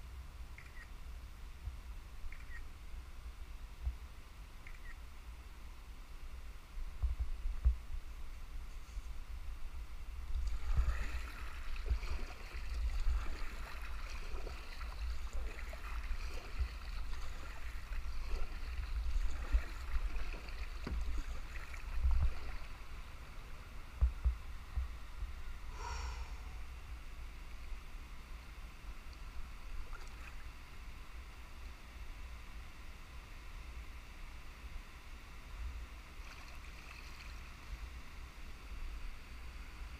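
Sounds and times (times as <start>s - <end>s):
low microphone rumble: 6.0s - 28.2s
paddle splashing in water: 10.3s - 22.8s.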